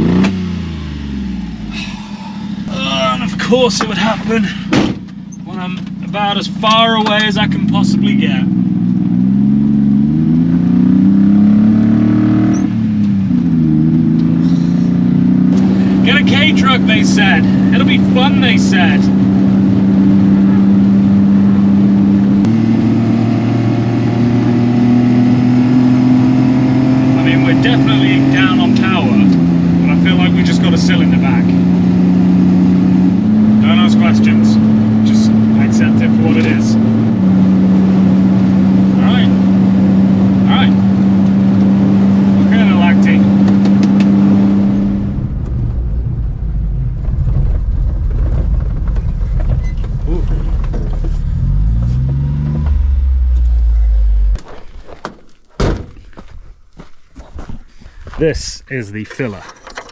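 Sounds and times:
low road rumble: 0.0 - 59.9
truck engine running: 12.7 - 25.2, 26.4 - 55.0
cab rattling knocks: 54.4 - 56.2.

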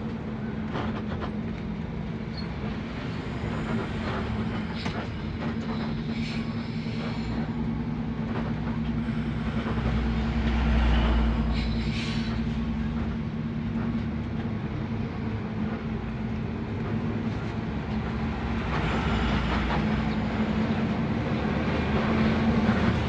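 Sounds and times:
bus engine drone: 0.0 - 23.0
road and rattle noise: 0.0 - 23.0.

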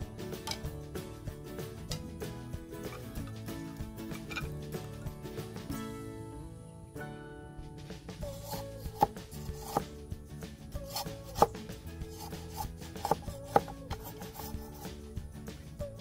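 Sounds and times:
background music: 0.0 - 16.0
machete chopping bamboo: 10.9 - 14.8.

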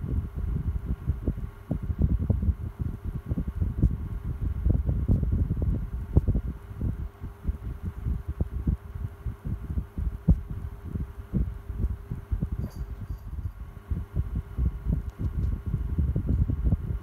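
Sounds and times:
desk fan airflow rumble: 0.0 - 17.0
faint steady hum: 0.0 - 17.0.

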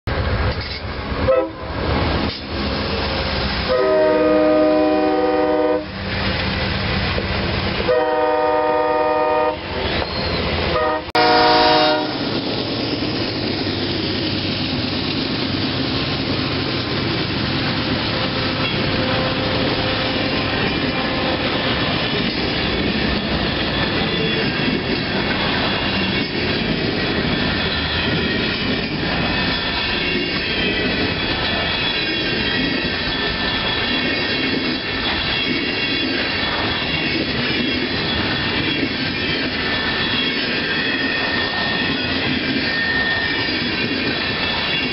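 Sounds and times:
train wheels rolling by: 0.1 - 44.9
locomotive air horn: 1.3 - 1.7, 3.6 - 5.9, 7.8 - 9.8, 10.7 - 12.3, 18.2 - 21.6.

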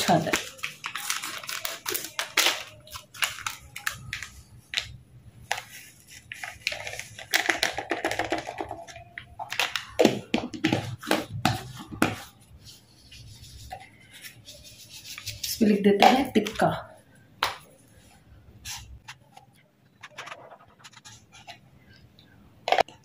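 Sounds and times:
plastic sachet crinkling: 0.0 - 10.0.

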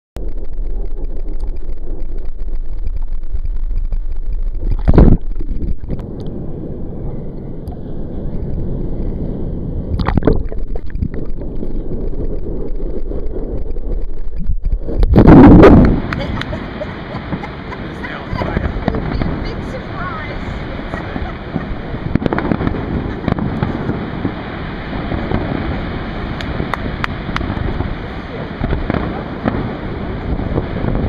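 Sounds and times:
wave surges washing over: 0.2 - 31.0
wind on microphone: 0.2 - 31.0
water sloshing and gurgling: 0.5 - 6.3, 7.2 - 29.1.

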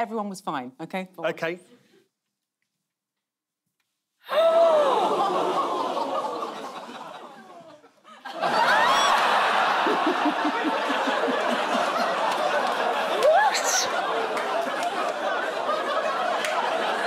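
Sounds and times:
audience laughing: 4.6 - 17.0.

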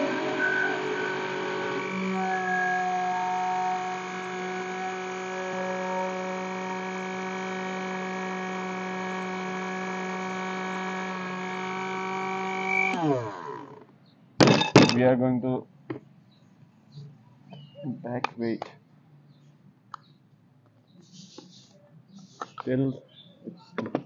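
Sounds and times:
mixer grinder motor running: 0.0 - 13.9.

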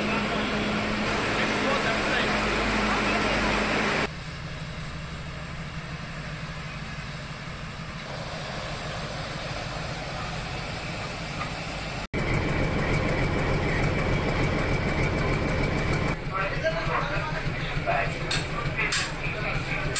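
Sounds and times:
crowded station platform noise: 0.0 - 4.1, 8.0 - 19.9
steam locomotive rumble and hiss: 0.0 - 19.9.

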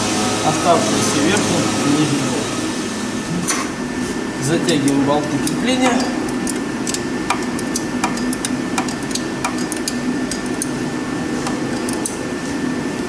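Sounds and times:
steady low hum: 0.0 - 13.0
wrench clicking on bolts: 4.7 - 10.8, 11.4 - 12.2.

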